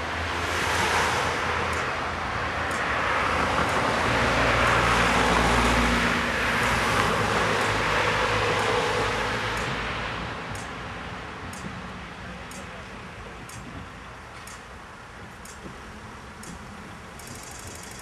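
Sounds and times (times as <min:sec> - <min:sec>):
car traffic passing: 0:00.0 - 0:18.0
crossing signal ticking: 0:00.7 - 0:11.8, 0:12.5 - 0:18.0.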